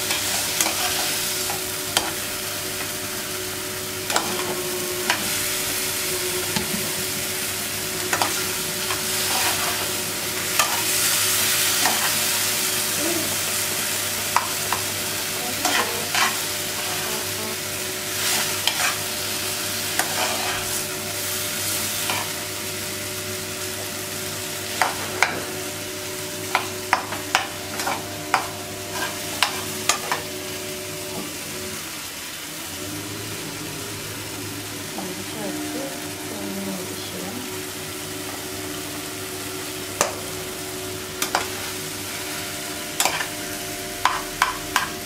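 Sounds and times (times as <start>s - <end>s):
vegetables sizzling in a frying pan: 0.0s - 45.0s
metal spoon scraping a pan: 0.1s - 2.2s, 8.0s - 11.1s, 15.6s - 17.3s, 18.2s - 19.1s, 19.9s - 20.8s, 26.5s - 30.2s, 42.9s - 43.4s.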